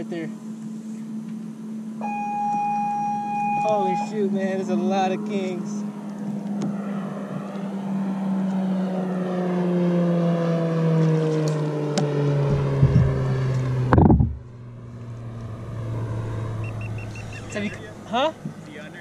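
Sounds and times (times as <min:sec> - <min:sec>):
motorboat engine passing: 0:00.0 - 0:19.0
rustling bump on microphone: 0:13.9 - 0:14.4.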